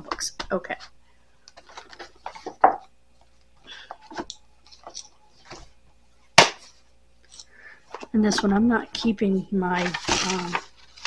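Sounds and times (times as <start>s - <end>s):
household items rustling: 1.5s - 2.9s, 3.7s - 5.8s, 6.4s - 11.0s.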